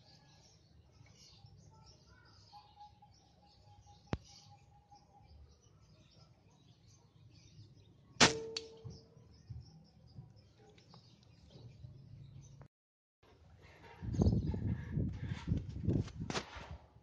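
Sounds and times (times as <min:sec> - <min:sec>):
air rifle shot crack: 0:08.2 - 0:08.8.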